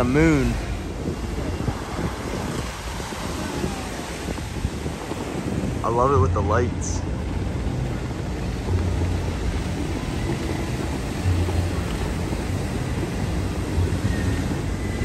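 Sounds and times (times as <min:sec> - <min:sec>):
fountain water jets rushing: 0:00.0 - 0:15.0
heavy low rumble: 0:00.0 - 0:15.0.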